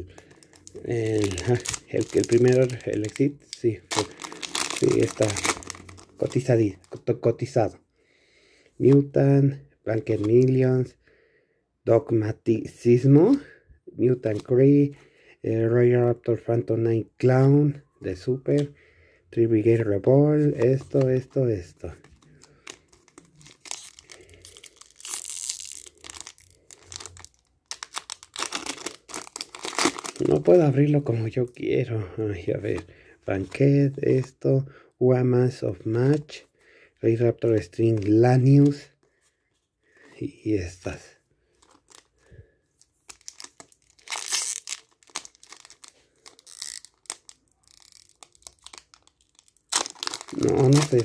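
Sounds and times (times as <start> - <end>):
foil wrapper tearing and crinkling: 0.1 - 6.5, 22.2 - 30.6, 43.0 - 51.0.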